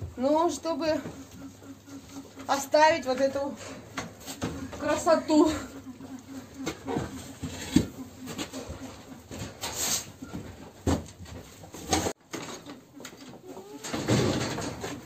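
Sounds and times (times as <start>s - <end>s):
bird calls: 0.2s - 10.4s
broom sweeping concrete floor: 9.6s - 10.2s.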